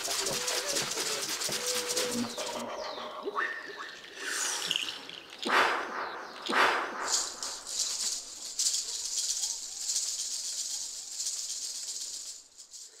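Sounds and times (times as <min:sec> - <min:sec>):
dry high rattling hiss: 0:00.0 - 0:02.6, 0:06.0 - 0:13.0.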